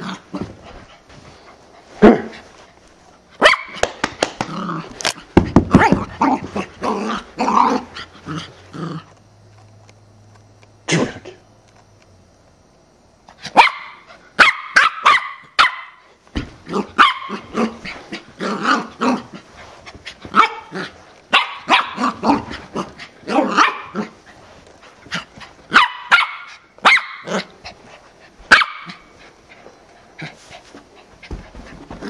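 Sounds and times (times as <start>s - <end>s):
puppy barking: 3.4s - 3.8s, 13.5s - 16.0s, 17.0s - 17.5s, 21.3s - 22.4s, 23.3s - 24.0s, 25.7s - 27.4s, 28.5s - 29.0s.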